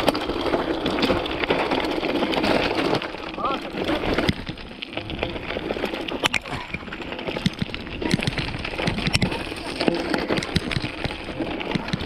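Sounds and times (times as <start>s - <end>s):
bike frame and chain rattling: 0.0s - 12.0s.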